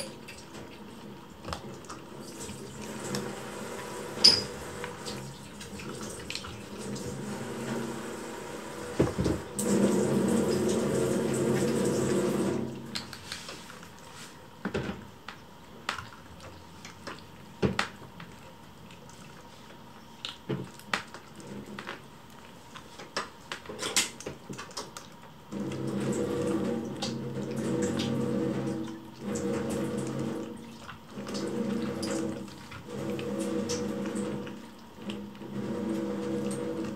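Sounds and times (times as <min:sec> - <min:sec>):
running water: 0:00.0 - 0:14.1, 0:23.8 - 0:36.9
bowl clicks and clinks: 0:04.2 - 0:04.6
kittens chewing food: 0:12.8 - 0:36.9.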